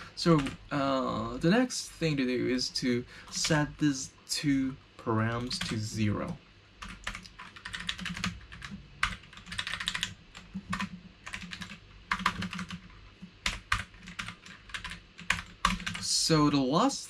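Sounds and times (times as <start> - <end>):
typing on computer keyboard: 0.4 - 0.6, 5.5 - 5.8, 6.8 - 16.0.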